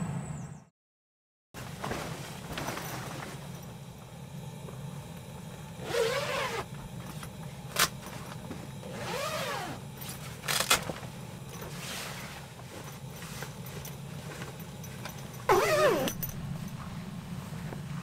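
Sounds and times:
steady low hum: 1.6s - 18.0s
tent zipper pulled: 5.8s - 6.7s, 8.8s - 9.8s, 15.5s - 16.4s.

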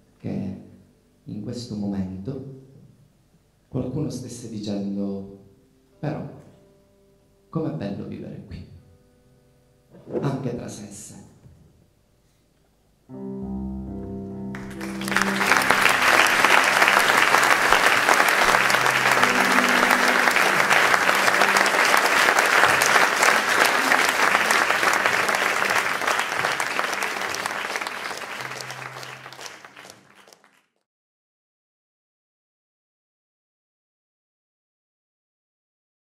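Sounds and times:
band music with keyboard: 13.1s - 30.0s
audience applauding: 14.5s - 30.8s.

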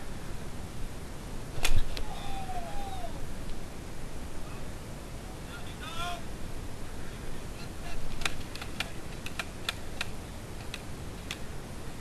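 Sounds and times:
outdoor noise: 0.0s - 12.0s
paintball markers firing: 8.1s - 11.4s.

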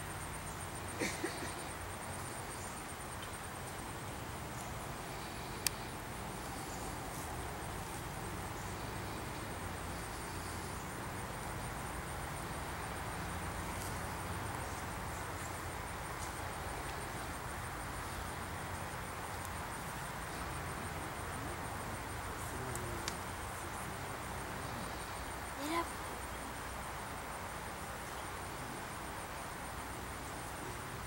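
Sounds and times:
low rumble and hiss: 0.0s - 31.0s.

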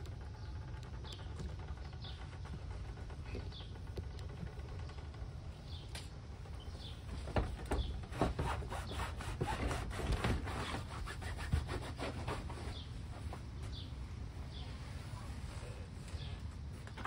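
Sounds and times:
bird chirping: 0.0s - 8.1s
rustling and scraping with clicks: 0.0s - 17.0s.

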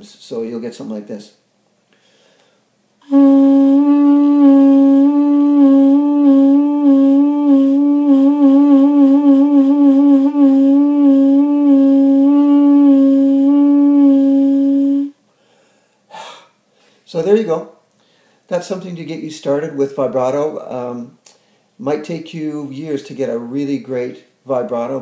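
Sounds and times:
duduk long note with vibrato: 3.0s - 15.1s.

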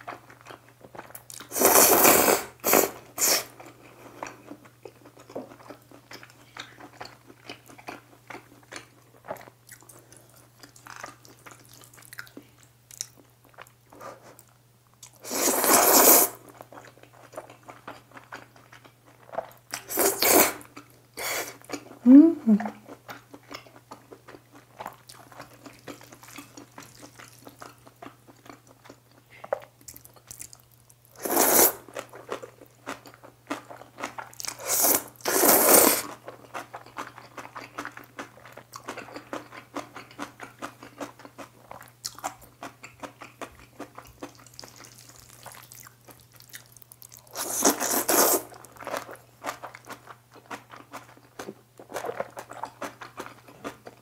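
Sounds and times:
noodle slurps: 1.5s - 3.5s, 15.2s - 16.4s, 19.9s - 20.6s, 31.2s - 31.9s, 34.5s - 36.2s, 47.3s - 48.6s
wet chewing with crunches: 22.8s - 31.0s, 31.9s - 54.0s.

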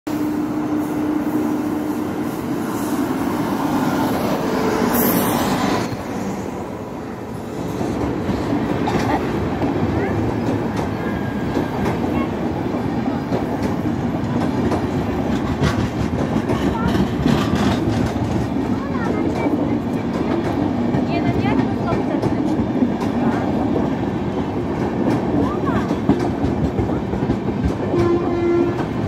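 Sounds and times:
train rumbling past: 0.1s - 29.0s
wheels clattering over rail joints: 7.8s - 23.6s.

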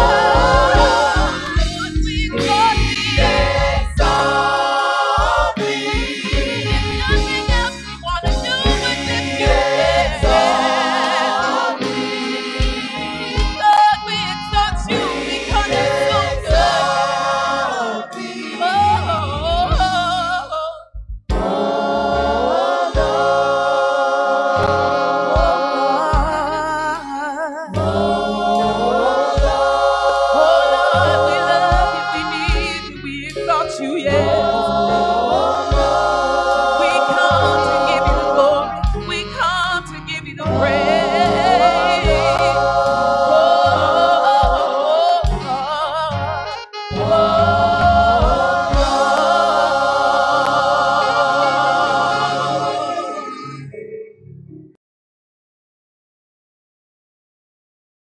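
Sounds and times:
gospel singing with band: 0.0s - 53.6s.

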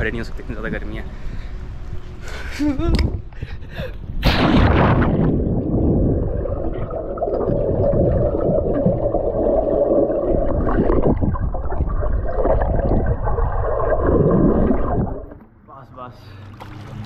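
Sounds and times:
underwater rushing and gurgling: 4.4s - 15.4s.

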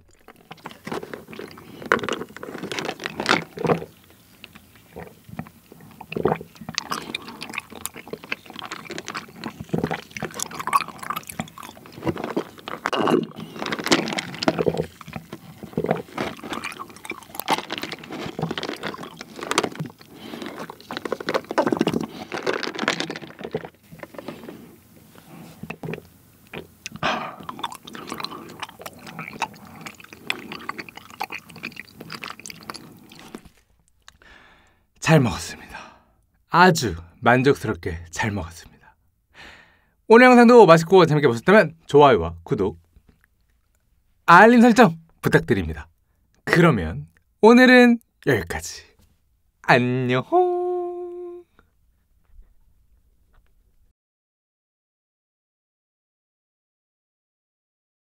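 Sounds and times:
slurping through a straw: 0.0s - 33.7s
wet chewing: 0.0s - 34.7s, 43.0s - 43.9s.

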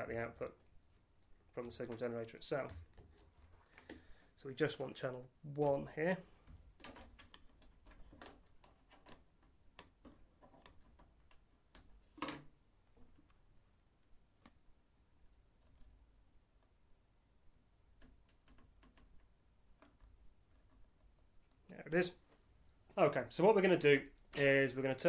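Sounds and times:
steady high-pitched tone: 13.4s - 25.0s.

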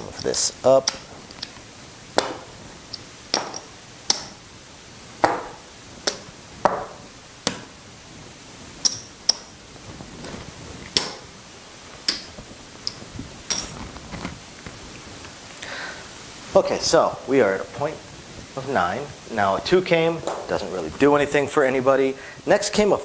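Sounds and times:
clay chips clacking: 0.0s - 1.6s, 2.2s - 4.4s.

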